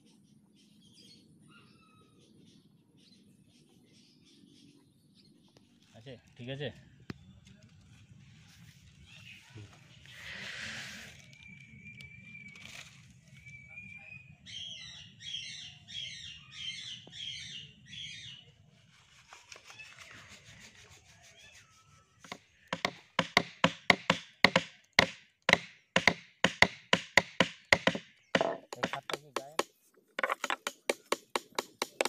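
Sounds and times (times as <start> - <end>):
chisel tapping wood: 22.3 - 32.0.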